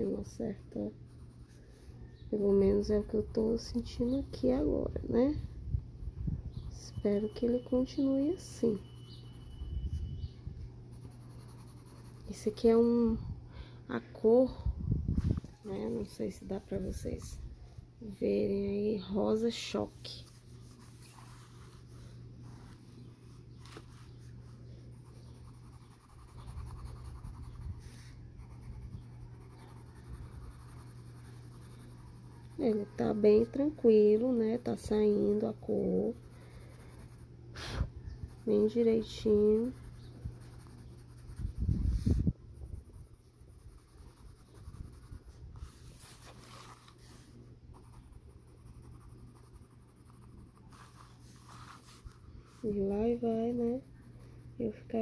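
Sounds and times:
coloured pencil shading on paper: 2.4 - 5.1, 6.6 - 10.3, 10.9 - 13.2, 18.2 - 55.0
paper rustle: 45.6 - 47.3.

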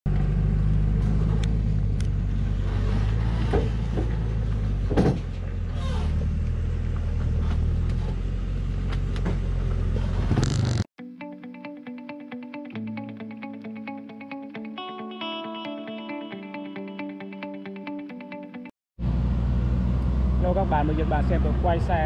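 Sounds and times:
truck diesel engine drone: 0.1 - 10.8, 19.0 - 22.0
truck knocks and clunks: 2.8 - 10.4.

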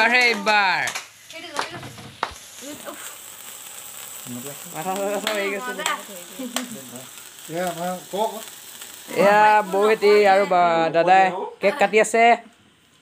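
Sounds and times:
sparkler candle fizzing: 0.0 - 13.0.

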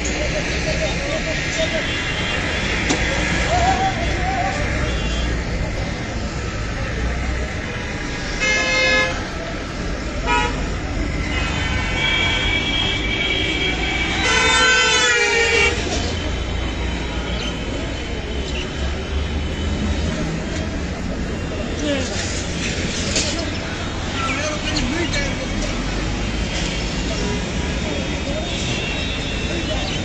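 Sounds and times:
low traffic rumble: 0.0 - 30.0
vehicle horns honking: 8.4 - 9.3, 10.2 - 15.9.

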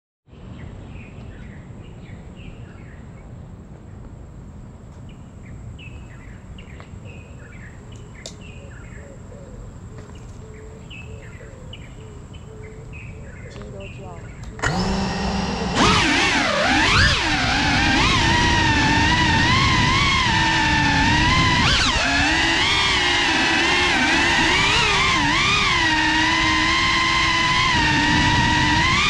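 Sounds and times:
birds chirping: 0.3 - 19.4
lower repeated bird call: 5.8 - 19.5.

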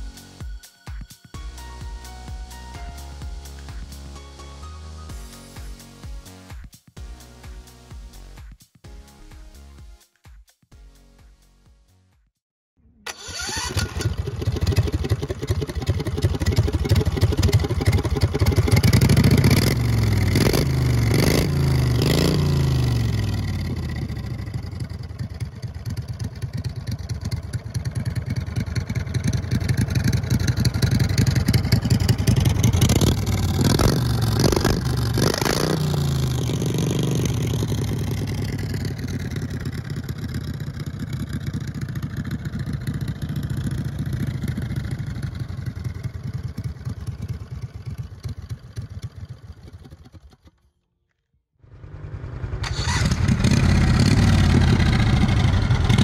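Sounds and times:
motorized bicycle engine revving: 29.2 - 40.5.

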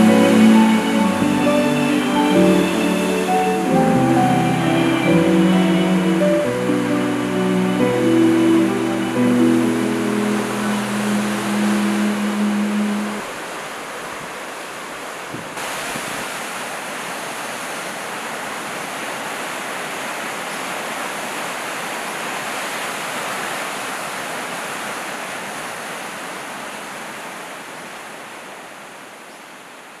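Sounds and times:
waves breaking over rocks: 9.2 - 26.9.

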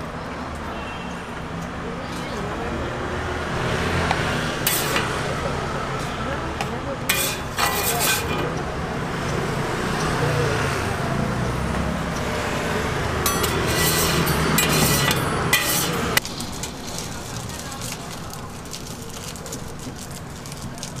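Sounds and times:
traffic hum: 0.0 - 21.0
metal utensils scraping griddle: 4.6 - 5.2, 7.1 - 8.6, 13.2 - 18.1.

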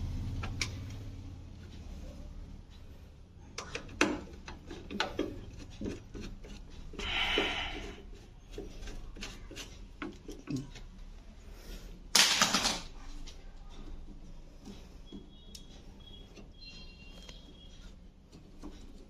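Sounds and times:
scraping rub: 4.2 - 12.0, 14.5 - 19.0.

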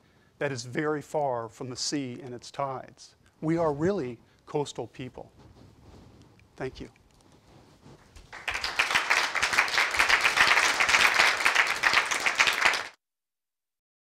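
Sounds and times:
audience applauding: 8.2 - 13.0.

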